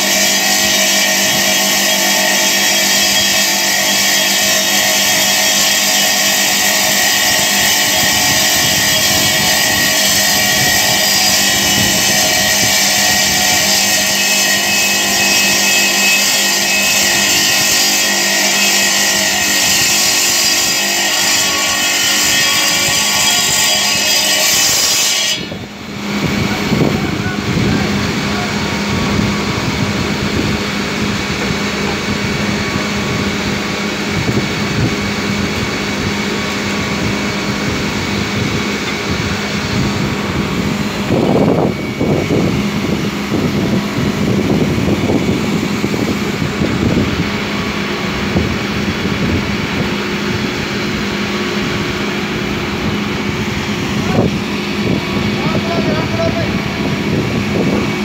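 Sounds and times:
saw blade grinding through marble: 0.0 - 26.8.

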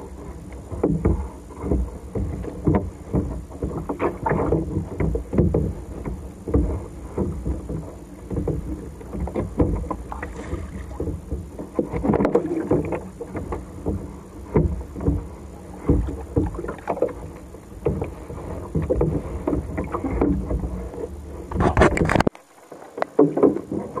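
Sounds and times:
wind rumbling on microphone: 0.0 - 22.4
water sloshing against kayak hull: 0.0 - 24.0
water splashes: 0.0 - 24.0.

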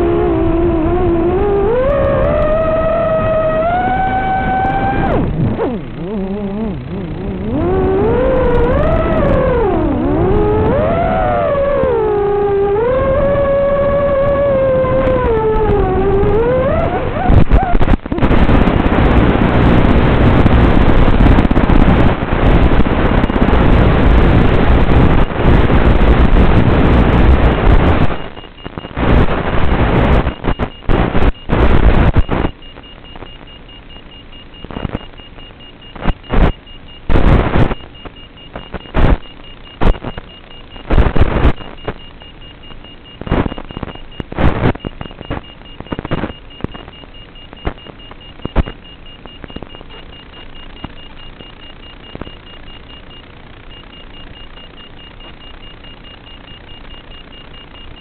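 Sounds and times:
bursts of hissing static: 0.0 - 33.7, 34.6 - 58.0.

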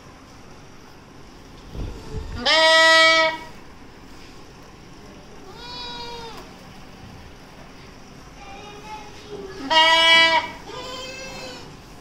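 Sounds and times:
goats and lambs bleating: 2.4 - 3.5, 5.4 - 6.5, 9.6 - 11.8.

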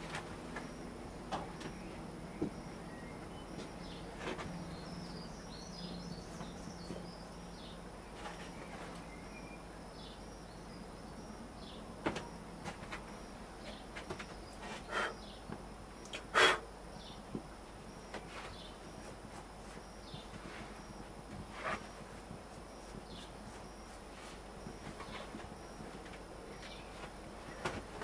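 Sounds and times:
faint bird chirps: 19.7 - 28.0.

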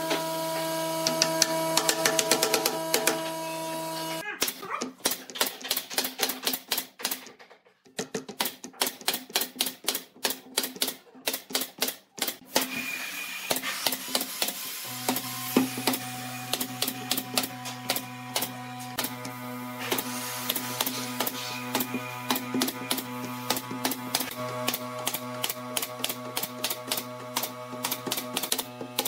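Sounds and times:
nail gun firing: 4.4 - 7.4, 8.3 - 12.8, 13.5 - 19.2, 19.9 - 29.0.

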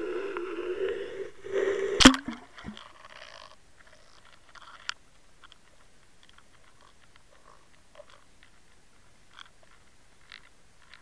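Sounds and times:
steady hum: 0.0 - 2.8
faint ticks and scrapes: 0.0 - 11.0.

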